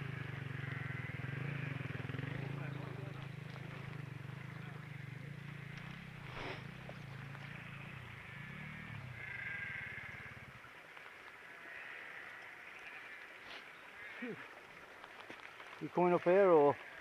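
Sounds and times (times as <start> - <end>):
sheep bleating: 0.6 - 1.9, 7.3 - 10.4, 11.4 - 14.5, 16.4 - 17.0.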